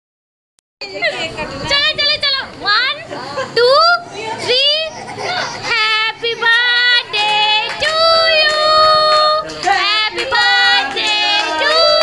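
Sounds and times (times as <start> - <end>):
children and women singing: 5.6 - 12.0.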